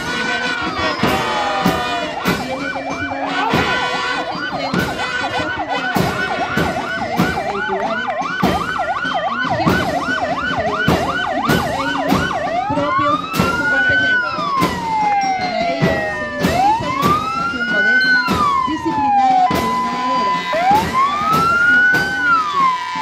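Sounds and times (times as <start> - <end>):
siren fast yelp: 0.0 - 23.0
siren wailing: 0.0 - 23.0.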